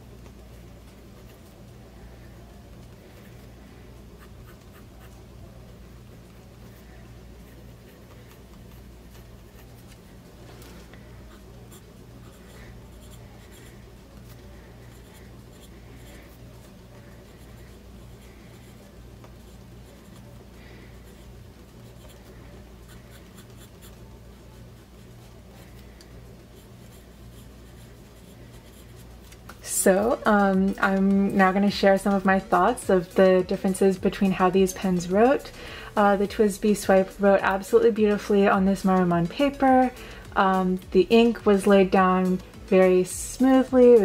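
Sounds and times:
steady low hum: 0:00.0 - 0:44.0
fountain pen scratching on paper: 0:06.7 - 0:10.1, 0:11.0 - 0:29.4.

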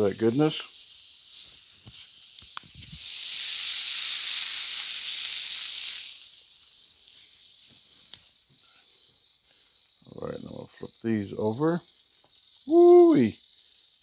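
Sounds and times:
butter sizzling in a skillet: 0:00.0 - 0:14.0.

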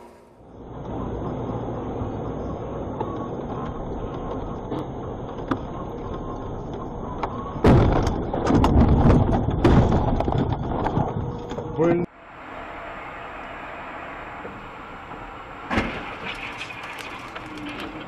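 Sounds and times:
vehicle driving road noise: 0:00.0 - 0:18.0
vehicle crashing into snow: 0:15.6 - 0:18.0
rattling and crunching: 0:15.7 - 0:18.0.

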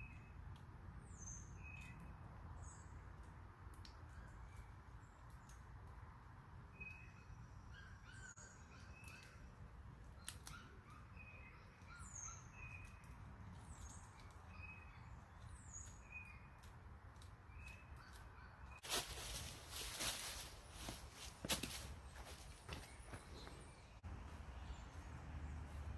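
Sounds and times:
faint birds calling: 0:06.7 - 0:25.9.

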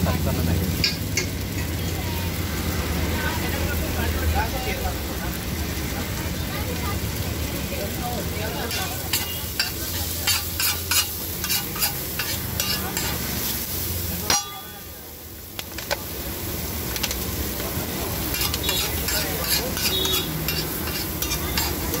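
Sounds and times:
food sizzling: 0:00.0 - 0:22.0
spatula clattering on iron griddle: 0:00.8 - 0:01.8, 0:08.6 - 0:13.3, 0:14.2 - 0:14.9, 0:18.2 - 0:22.0.

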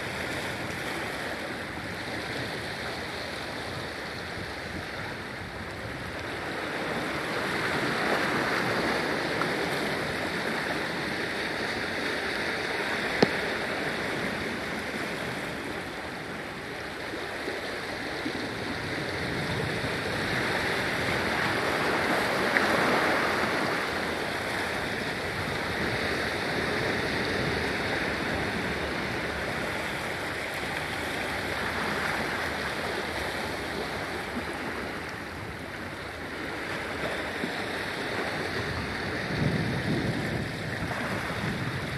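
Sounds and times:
ocean surf washing ashore: 0:00.0 - 0:41.9.

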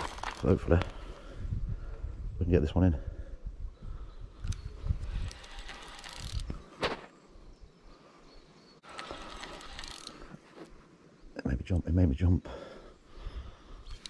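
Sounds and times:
fishing reel ratcheting: 0:05.2 - 0:06.5, 0:08.9 - 0:10.2.

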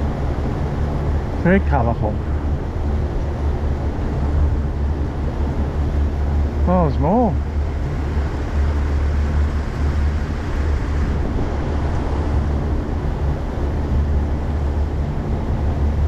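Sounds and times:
wind and water hiss: 0:00.0 - 0:16.0.

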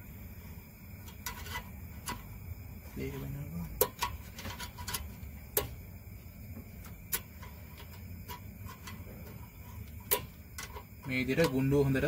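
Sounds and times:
low steady hum: 0:00.0 - 0:12.0
spanner ticking on metal: 0:03.7 - 0:05.8, 0:06.8 - 0:12.0.

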